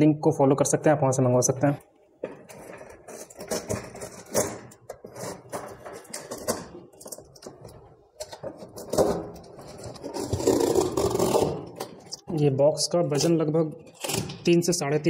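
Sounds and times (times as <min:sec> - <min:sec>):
packing tape peeling off cardboard: 0:02.5 - 0:12.0.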